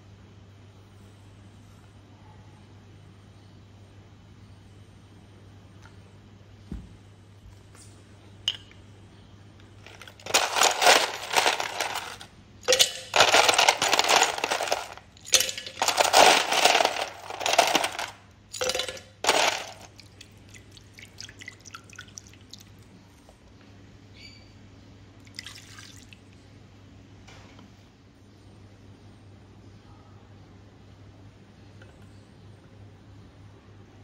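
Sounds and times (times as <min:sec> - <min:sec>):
ice cubes clattering into blender: 0:09.8 - 0:20.0.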